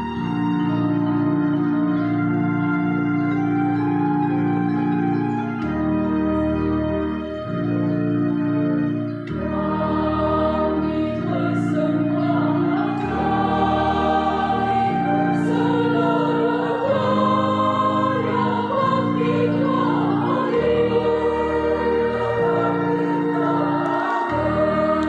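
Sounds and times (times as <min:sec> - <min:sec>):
sustained keyboard chords: 0:00.0 - 0:25.0
choir singing a hymn: 0:09.1 - 0:25.0.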